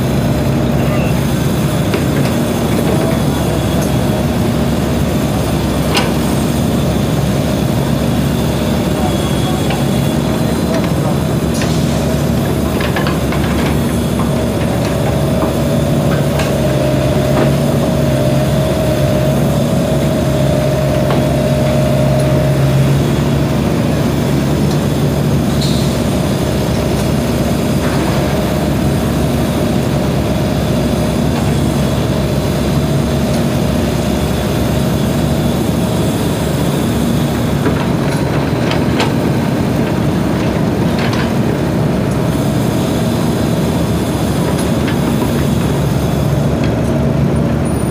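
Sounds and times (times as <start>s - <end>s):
excavator diesel engine drone: 0.0s - 47.9s.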